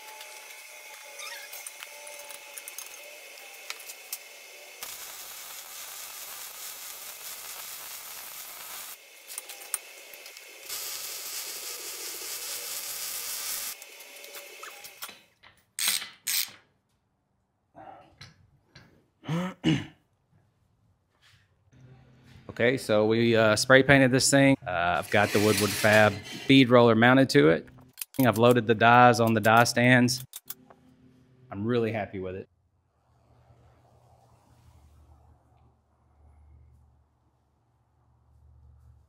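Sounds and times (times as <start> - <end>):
welding arc crackling hiss: 0.0 - 15.1.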